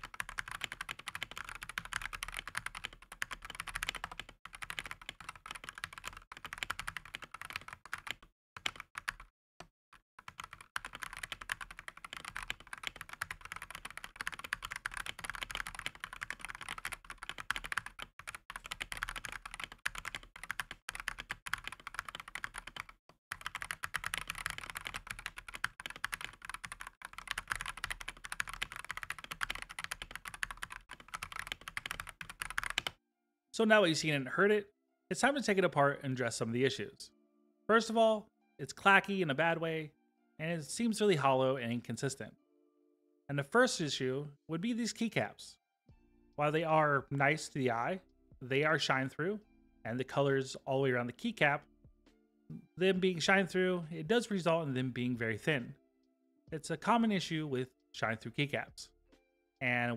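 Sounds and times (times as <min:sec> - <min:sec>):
mechanical keyboard typing: 0:00.0 - 0:09.3, 0:10.2 - 0:33.0.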